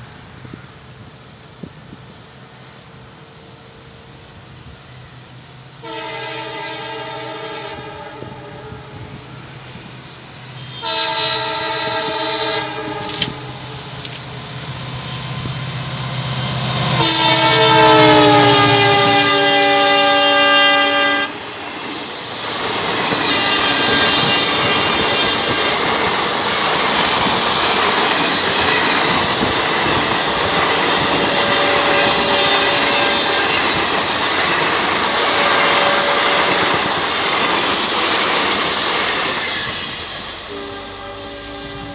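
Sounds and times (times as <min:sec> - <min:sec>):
locomotive horn blasts: 0:05.8 - 0:09.2, 0:10.5 - 0:13.8, 0:16.9 - 0:21.5, 0:23.3 - 0:24.8, 0:31.2 - 0:33.7, 0:35.2 - 0:36.9, 0:40.1 - 0:41.9
train wheels clickety-clack: 0:10.8 - 0:14.4, 0:21.2 - 0:40.5.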